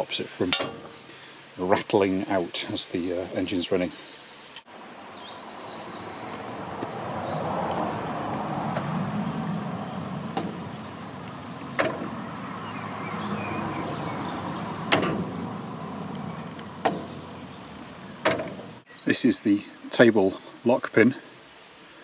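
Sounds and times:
vehicle engine and tyre noise: 4.7 - 18.9.

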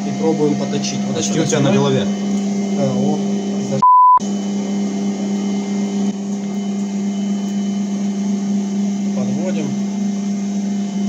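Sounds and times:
lathe motor humming: 0.0 - 11.0
electronic bleep: 3.8 - 4.2.

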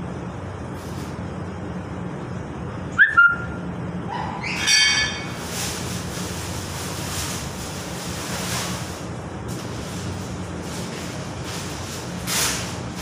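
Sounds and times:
low machine hum: 0.0 - 13.0
sharp high squeaks: 4.2 - 5.4.

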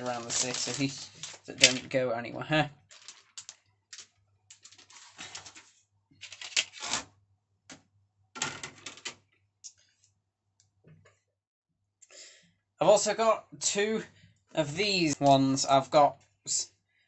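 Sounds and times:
plastic plates clattering and scraping: 4.5 - 7.1, 8.4 - 9.2.

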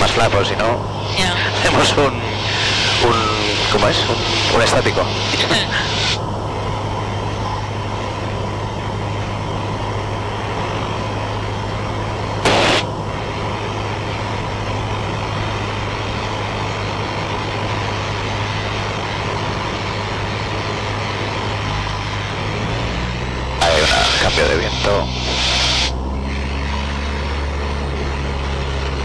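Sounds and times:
loud burst of noise: 0.0 - 6.3, 12.2 - 13.0, 21.0 - 26.6
airplane engine and propeller drone: 0.0 - 29.0
faint steady whine: 0.0 - 29.0.

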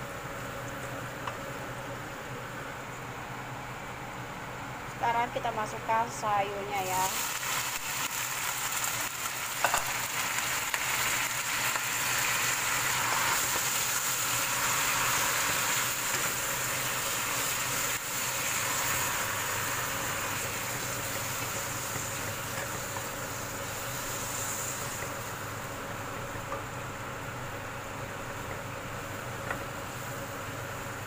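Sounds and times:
vegetables sizzling in hot oil: 6.6 - 31.0.

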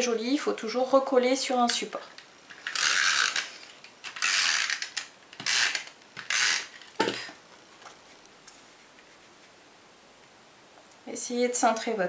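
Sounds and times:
tape dispenser ratcheting: 2.5 - 7.3.

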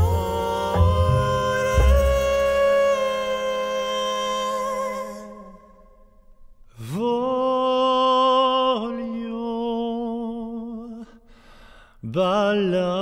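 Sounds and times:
person singing wordless notes: 0.0 - 6.1.

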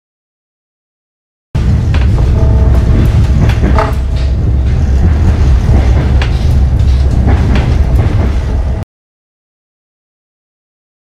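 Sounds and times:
loud low rumble: 1.6 - 8.8.

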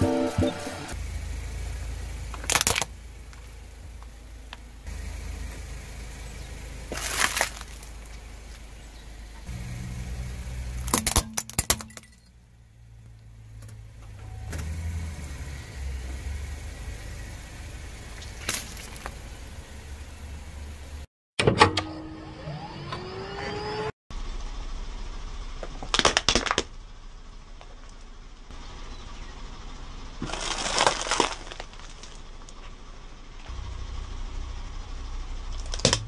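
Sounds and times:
low car rumble: 0.0 - 21.1, 22.0 - 36.0
plastic cracking under tyre: 2.3 - 3.5, 6.9 - 8.6, 25.7 - 26.7, 30.2 - 32.6, 35.6 - 36.0.

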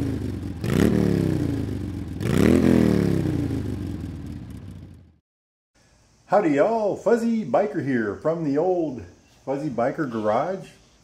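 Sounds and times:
motorcycle engine revving: 0.0 - 5.2.

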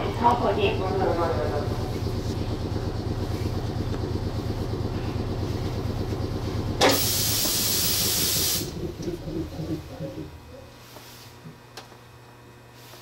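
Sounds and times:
electric train humming: 0.0 - 11.2
compressed air hiss: 6.8 - 8.7.

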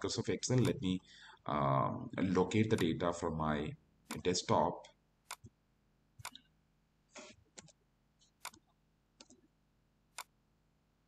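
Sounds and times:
computer mouse clicks: 0.6 - 0.8, 5.3 - 5.5, 6.2 - 6.5, 7.2 - 9.4.

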